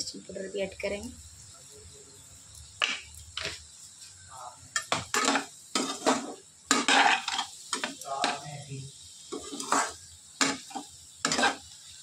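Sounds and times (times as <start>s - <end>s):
spoon scraping and clinking metal pan: 4.8s - 8.4s, 9.3s - 11.6s.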